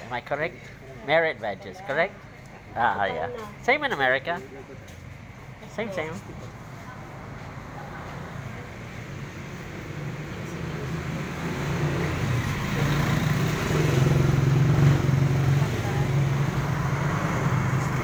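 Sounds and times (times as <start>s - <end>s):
passing vehicle engine hum: 4.4s - 18.0s.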